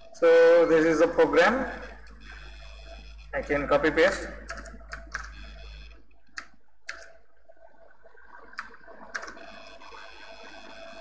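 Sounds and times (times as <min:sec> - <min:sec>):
faint steady hum: 0:00.0 - 0:11.0
computer mouse clicks: 0:04.4 - 0:07.2, 0:08.6 - 0:09.5.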